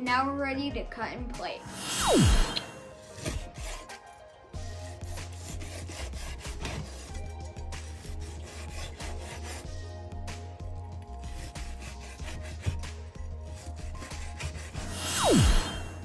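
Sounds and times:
knife sawing through steak: 1.7s - 10.2s, 11.0s - 16.0s
blade rubbing on wooden board: 1.7s - 16.0s
background music with pulsing bass: 9.2s - 16.0s.

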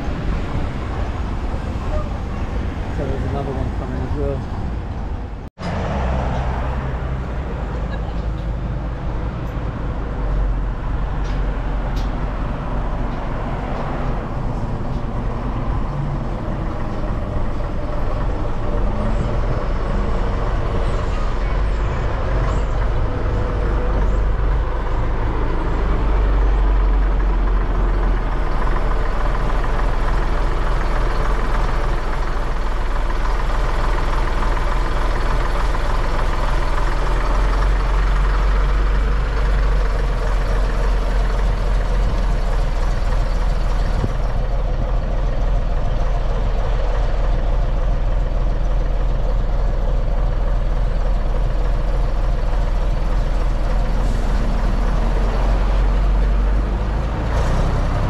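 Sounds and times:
bus engine running: 0.0s - 58.0s.

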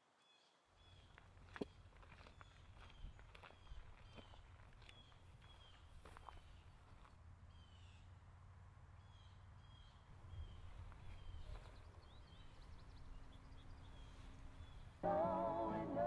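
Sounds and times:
faint birds chirping: 0.2s - 8.2s, 8.9s - 16.0s
music with singing: 15.0s - 16.0s.

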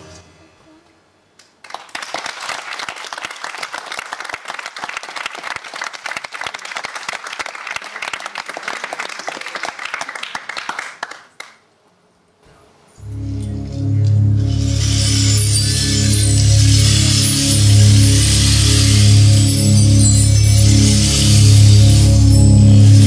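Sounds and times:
audience applauding: 1.4s - 11.7s.

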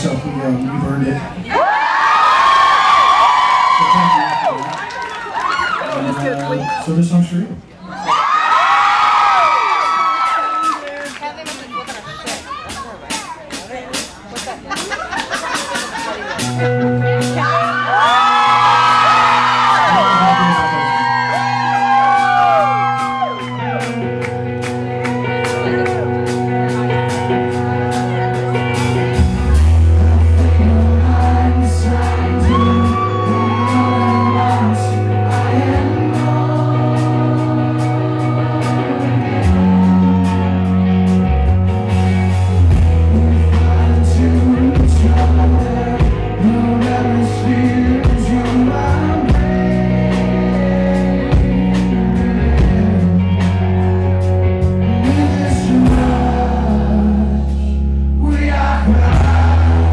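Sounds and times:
drums: 7.9s - 59.9s
electric guitar: 15.8s - 59.9s
sustained bass notes: 16.2s - 59.9s
man singing: 29.6s - 40.8s, 42.8s - 54.1s, 54.7s - 59.9s.

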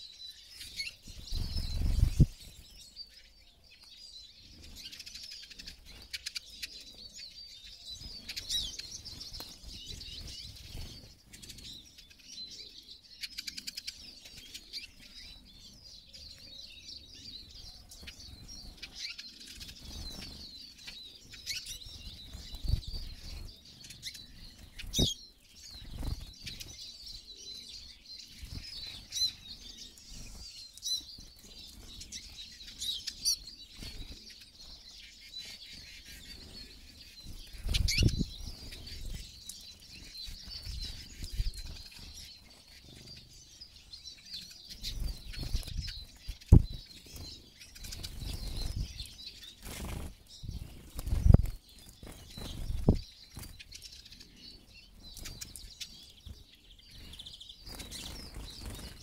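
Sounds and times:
flock of small birds twittering: 0.0s - 59.0s.

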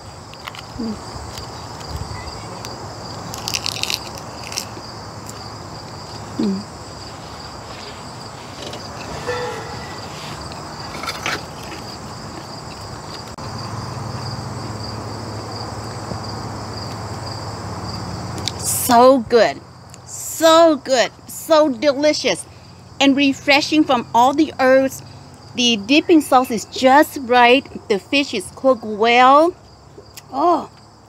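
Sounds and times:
insects chirping: 0.0s - 31.0s
crunchy food chewing: 0.3s - 2.0s, 2.6s - 8.9s, 10.2s - 14.9s.

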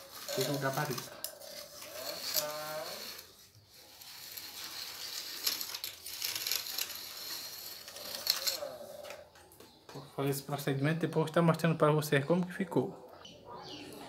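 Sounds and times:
board scraping damp sand: 0.0s - 8.5s.

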